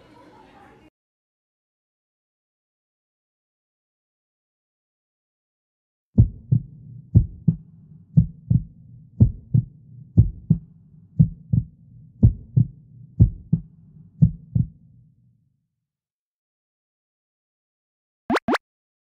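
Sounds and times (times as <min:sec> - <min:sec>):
heartbeat thumps: 0:06.2 - 0:07.6, 0:08.2 - 0:14.7.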